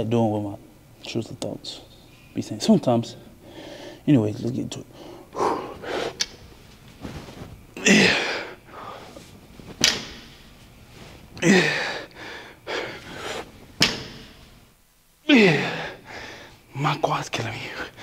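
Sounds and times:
man breathing hard and grunting: 0:05.0 - 0:06.2, 0:07.8 - 0:09.2, 0:11.4 - 0:13.5, 0:15.3 - 0:16.6
gym equipment knocks: 0:13.8 - 0:14.4.

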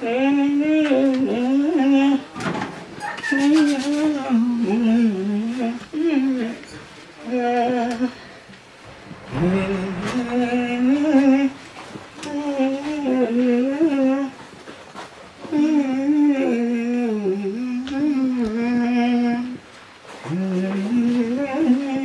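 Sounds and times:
person humming: 0:00.0 - 0:02.3, 0:03.4 - 0:08.2, 0:12.2 - 0:14.4, 0:15.5 - 0:19.6, 0:20.2 - 0:22.0.

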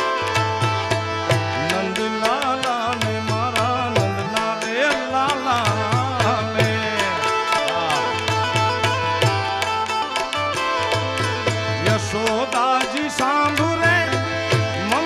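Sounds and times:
harmonium chords: 0:00.0 - 0:15.0
tabla and dholak rhythm: 0:00.0 - 0:15.0
wordless singing voice: 0:01.5 - 0:08.4, 0:11.8 - 0:15.0.

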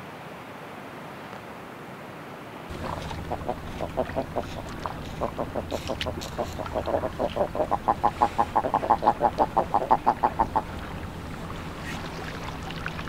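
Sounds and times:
duck clucking: 0:02.7 - 0:12.0.

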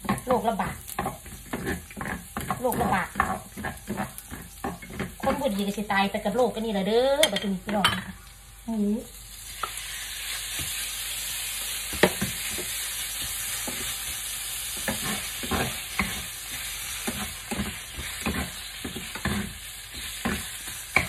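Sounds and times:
wooden utensils knocking and scraping pan: 0:00.0 - 0:05.6, 0:14.8 - 0:21.0
meat sizzling in hot oil: 0:00.0 - 0:21.0.

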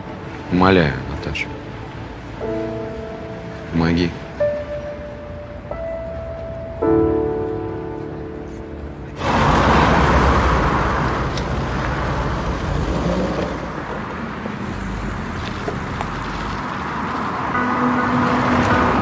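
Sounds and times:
soft background music: 0:00.0 - 0:09.2, 0:16.8 - 0:19.0
city street traffic: 0:00.0 - 0:19.0.

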